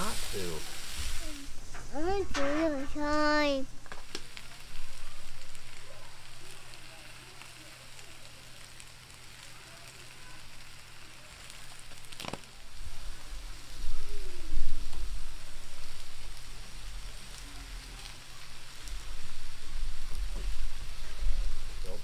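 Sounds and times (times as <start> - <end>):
vegetables sizzling on a griddle: 0.0 - 22.0
low rumbling: 18.6 - 22.0.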